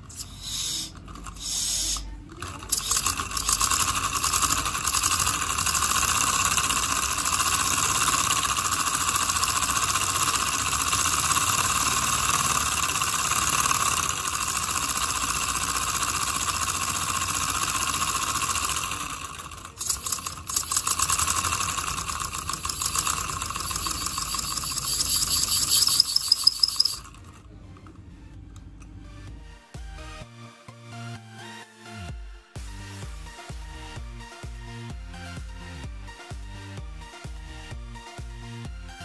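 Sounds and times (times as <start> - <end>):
steam engine hissing chuff: 0.0 - 27.2
rods and crank rattling: 0.0 - 28.1.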